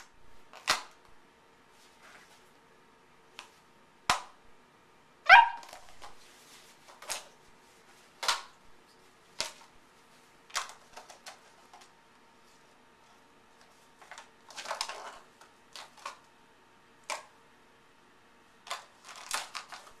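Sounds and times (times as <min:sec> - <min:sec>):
puppy barking: 0:05.2 - 0:05.9
plastic cup clicking and crackling: 0:10.5 - 0:11.9, 0:18.6 - 0:20.0.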